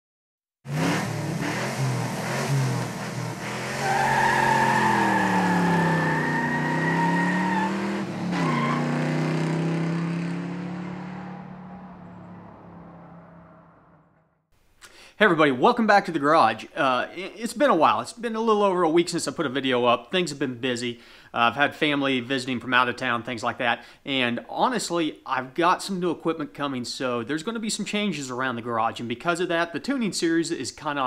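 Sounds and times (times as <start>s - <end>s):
car engine revving: 0.7s - 14.2s.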